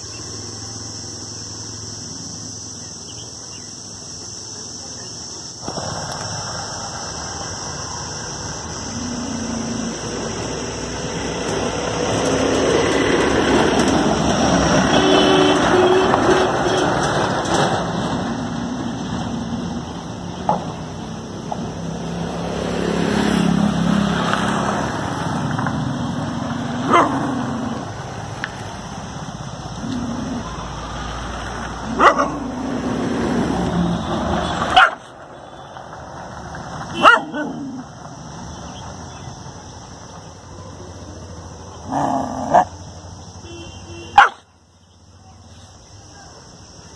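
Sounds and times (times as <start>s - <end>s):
dog growling: 8.8s - 10.4s, 29.8s - 30.7s, 37.2s - 37.9s, 41.8s - 42.8s
dog barking sharply: 32.0s - 32.4s, 34.7s - 35.0s, 37.0s - 37.5s, 44.2s - 44.4s.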